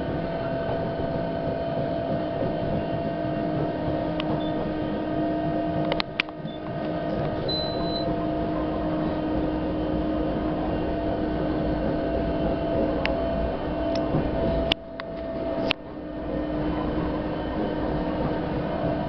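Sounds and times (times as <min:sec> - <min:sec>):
wheels rumbling on track: 0:00.0 - 0:19.0
high squeak: 0:07.4 - 0:08.1.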